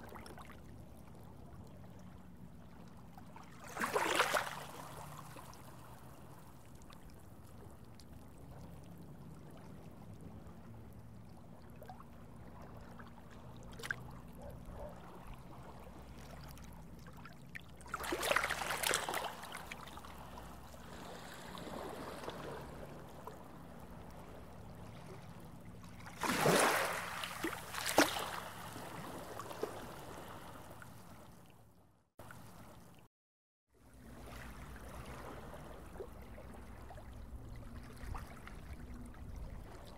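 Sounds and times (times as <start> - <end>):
low underwater hum: 0.0 - 33.1, 33.8 - 39.9
gurgling water: 33.9 - 39.9.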